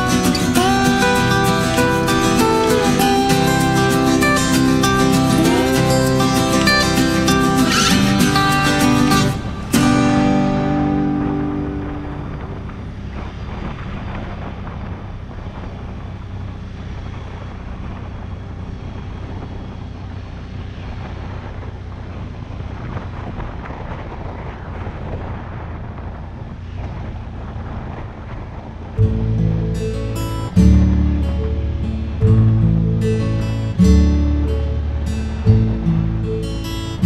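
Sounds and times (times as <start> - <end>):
guitar music: 0.0 - 13.9, 29.0 - 37.0
atv engine running: 0.0 - 37.0
wind noise on microphone: 0.0 - 37.0.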